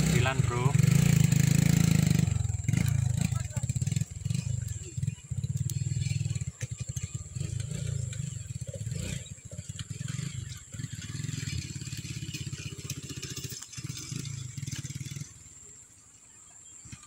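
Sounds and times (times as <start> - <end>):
small engine puttering: 0.0 - 16.0, 16.6 - 17.0.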